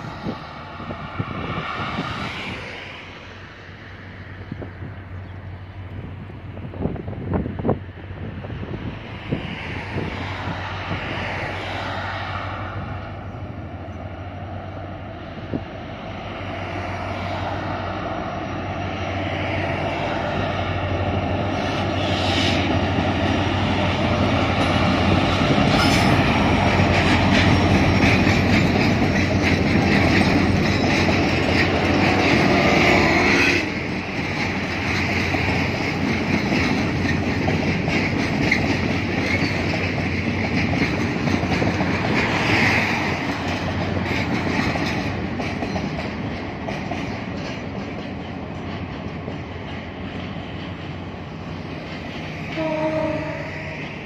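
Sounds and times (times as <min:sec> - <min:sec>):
diesel locomotive engine rumble: 0:00.0 - 0:54.0
rolling freight wagons: 0:09.2 - 0:54.0
wheels clicking over rail joints: 0:22.9 - 0:54.0.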